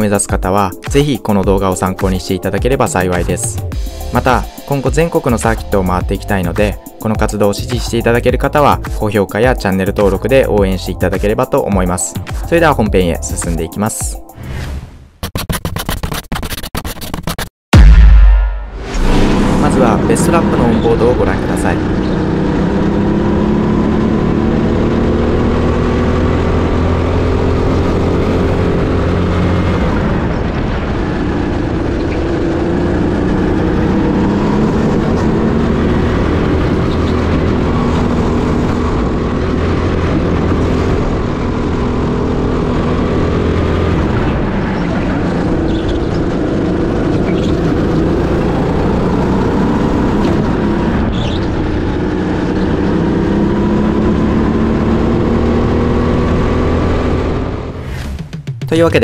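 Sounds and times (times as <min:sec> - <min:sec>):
kart engine revving: 0:19.7 - 0:57.8.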